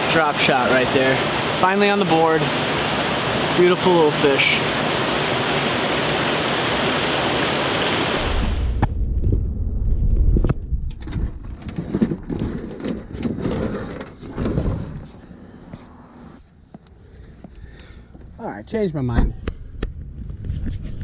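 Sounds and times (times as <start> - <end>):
creek water rushing: 0.0 - 8.8
low rumble: 8.2 - 12.3, 19.3 - 21.0
gear knocking and rustling: 10.2 - 15.0.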